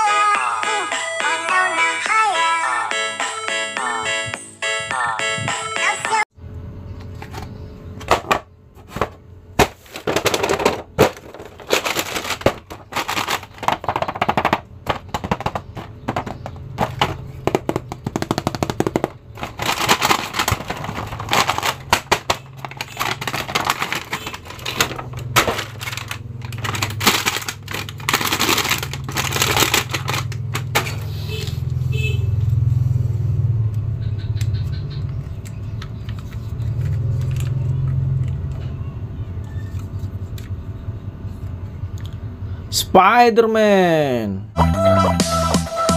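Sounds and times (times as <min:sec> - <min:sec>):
plastic packaging crackling: 0:09.6 - 0:31.0.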